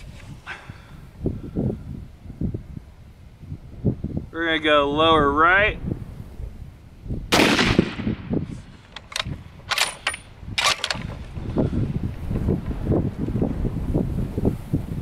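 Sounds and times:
rifle shot with ringing tail: 7.3s - 8.4s
rifle bolt metallic clicks: 8.8s - 11.2s.

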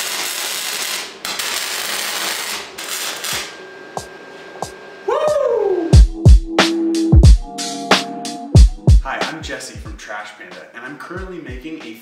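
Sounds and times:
welding arc crackling: 0.0s - 3.6s.

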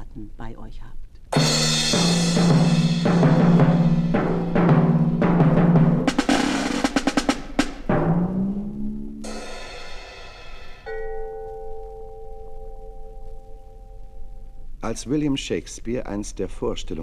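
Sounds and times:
pitched drums playing: 1.3s - 11.3s
bright ringing stroke: 10.8s - 13.2s.

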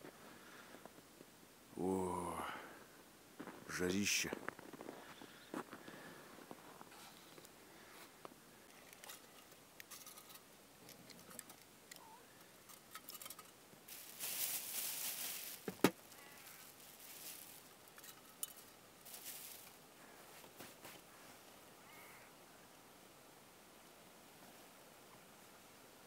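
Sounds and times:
small clicks and scrapes on ice: 8.6s - 14.6s, 17.9s - 19.8s
crunching on ice: 13.9s - 19.8s.

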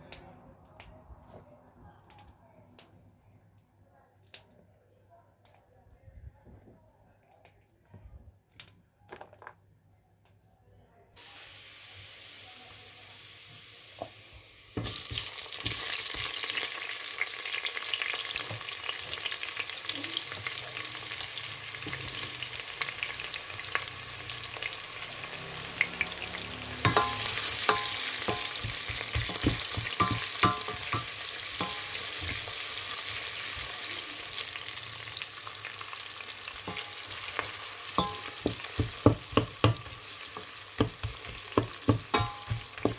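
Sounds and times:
onions sizzling in hot oil: 11.2s - 42.9s
wooden spoon knocking on pot: 26.8s - 32.4s, 38.0s - 42.9s.

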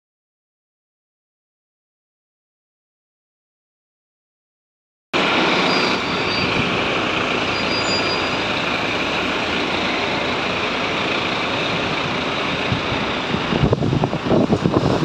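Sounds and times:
fire truck diesel engine: 5.2s - 15.0s
street traffic: 5.2s - 15.0s.

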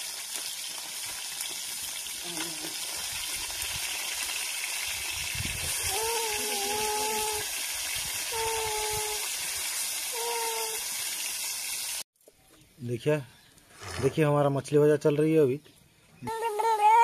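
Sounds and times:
fish sizzling in hot oil: 0.0s - 12.0s.

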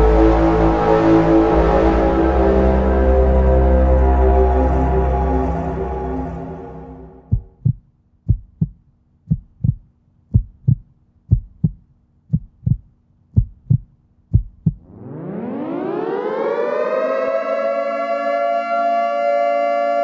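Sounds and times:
music: 0.0s - 7.5s
heartbeat double thumps: 7.2s - 14.9s
air-raid siren winding up: 14.8s - 20.0s.

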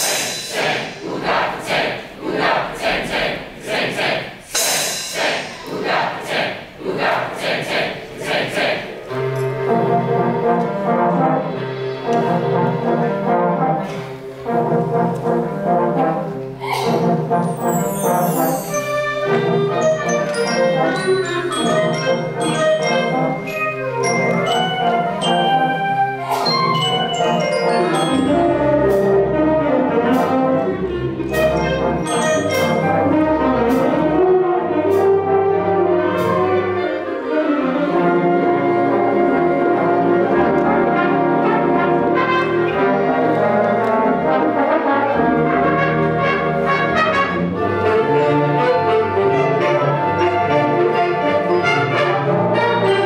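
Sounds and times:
sharp percussion strikes: 0.0s - 1.5s, 4.0s - 6.6s, 26.2s - 29.1s
symphonic band playing: 0.0s - 53.0s.

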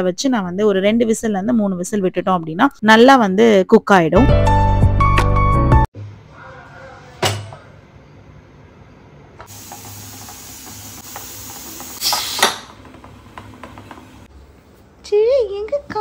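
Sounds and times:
steam hissing from pressure cooker: 9.5s - 12.8s.

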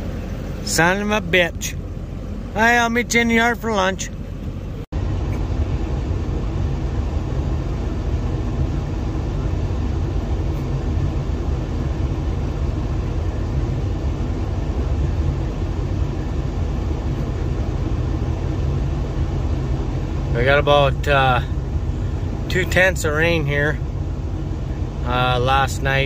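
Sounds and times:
engine and road rumble: 0.0s - 26.0s.

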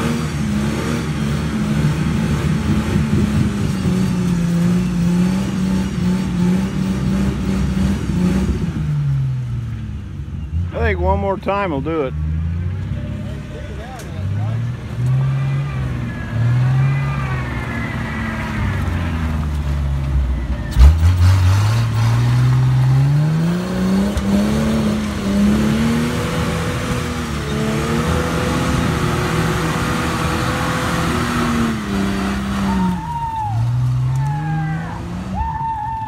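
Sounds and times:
engine revving high: 0.0s - 8.9s, 20.7s - 33.0s.

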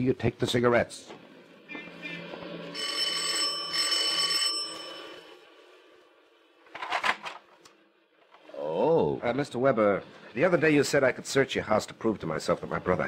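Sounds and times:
electric doorbell ringing: 2.7s - 5.4s.

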